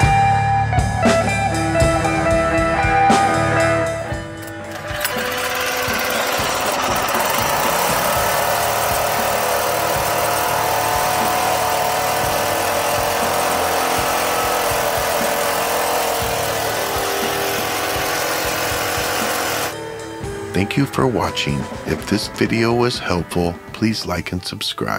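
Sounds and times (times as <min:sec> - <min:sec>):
small gasoline engine running: 0:04.0 - 0:19.8.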